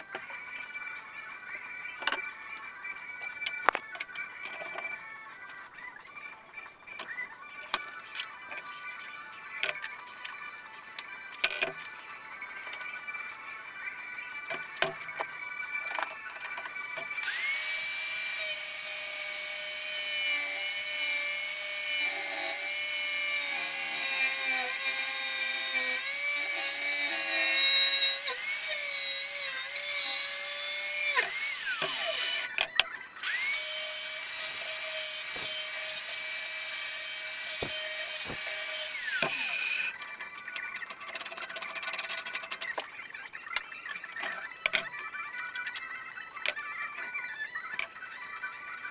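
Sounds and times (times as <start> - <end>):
angle grinder cutting steel rod: 17.2 - 32.6, 33.2 - 39.9.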